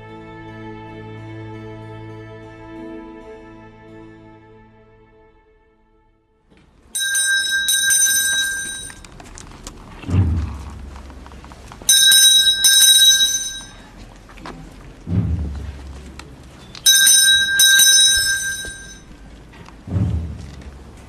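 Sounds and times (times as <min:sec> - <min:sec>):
small hand bell ringing: 0:07.0 - 0:09.1, 0:11.9 - 0:13.9, 0:16.8 - 0:19.1
low muffled drum beat: 0:10.0 - 0:11.6, 0:15.0 - 0:19.0, 0:19.8 - 0:21.0.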